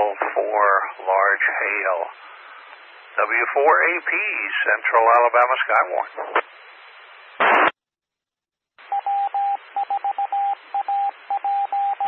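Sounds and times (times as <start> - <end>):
carrier hiss: 0.0 - 7.8
morse code tone: 8.9 - 12.0.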